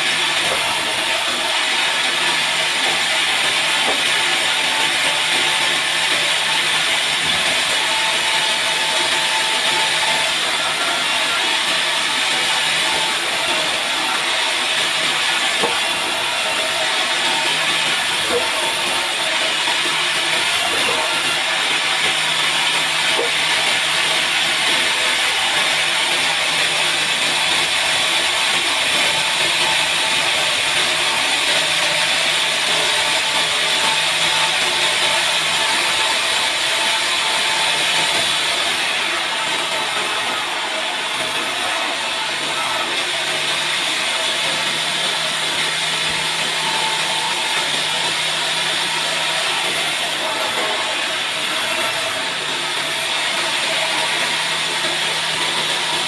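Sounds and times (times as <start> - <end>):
band saw cutting log: 0.0 - 56.0
machine humming: 0.0 - 56.0.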